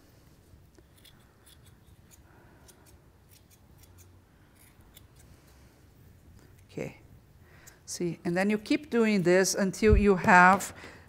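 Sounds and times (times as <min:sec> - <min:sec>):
scissors snipping yarn: 0:00.8 - 0:05.3.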